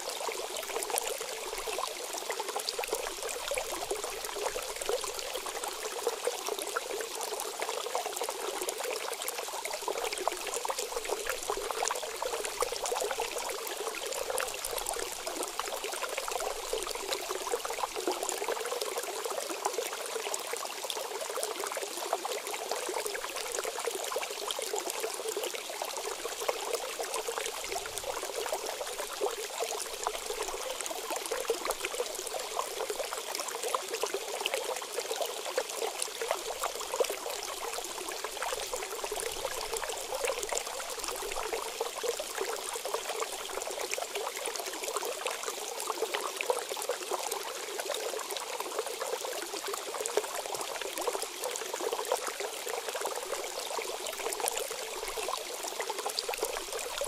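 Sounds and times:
stream running over rocks: 0.0s - 57.0s.

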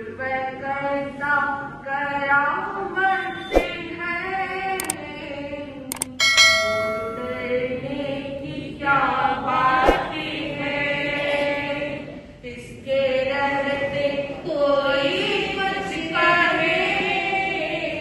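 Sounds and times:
women singing devotional chant: 0.0s - 5.9s, 7.2s - 18.0s
metallic ring: 6.1s - 7.8s.

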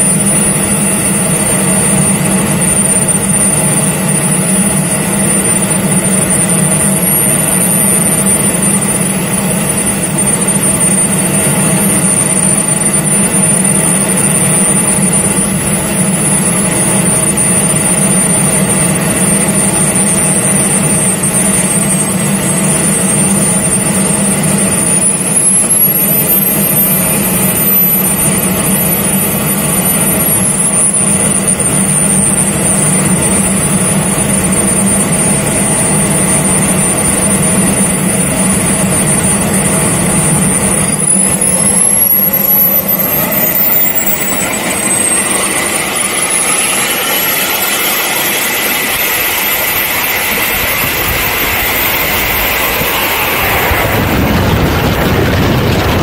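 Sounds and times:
model jet engines whining: 0.0s - 56.0s.

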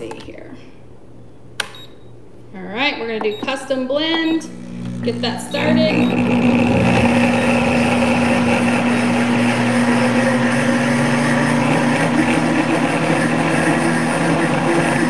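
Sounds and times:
blender motor whirring: 4.2s - 15.0s.

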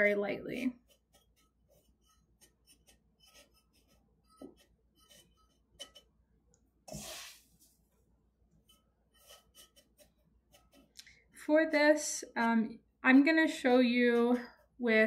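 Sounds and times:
short hiss: 6.9s - 7.6s.

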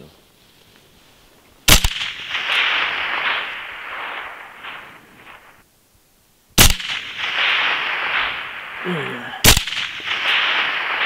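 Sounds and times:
rifle shot: 1.7s - 5.6s, 6.6s - 11.0s
rolling echo of rifle shot: 1.7s - 5.6s, 6.6s - 11.0s.

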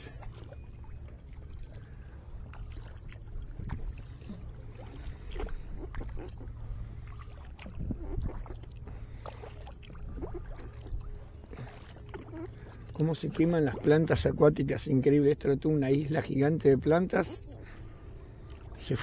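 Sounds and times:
kayak paddle strokes splashing: 0.0s - 14.2s
low steady rumble: 0.0s - 19.0s.

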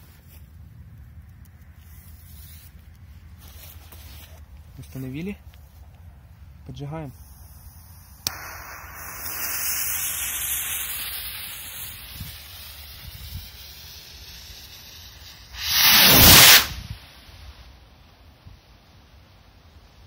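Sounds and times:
rocket hissing: 7.0s - 17.8s.

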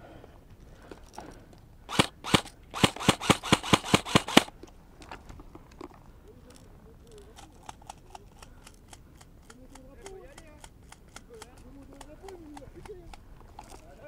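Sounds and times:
airsoft rifle shots: 1.9s - 4.5s.

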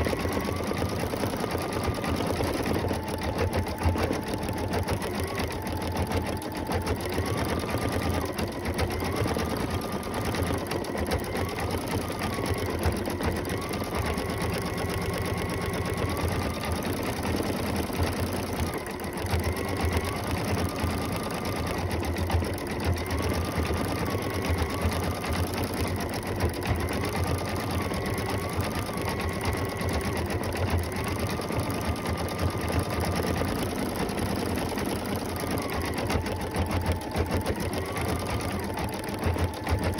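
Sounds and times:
embroidery machine needle clatter: 0.0s - 39.9s
motor whine: 0.0s - 39.9s.

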